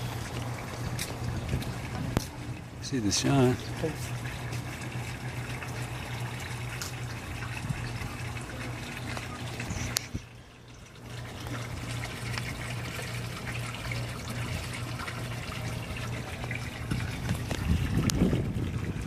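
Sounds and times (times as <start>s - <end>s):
water trickling and lapping: 0.0s - 19.0s
wind rumbling on microphone: 0.7s - 2.5s, 16.7s - 19.0s.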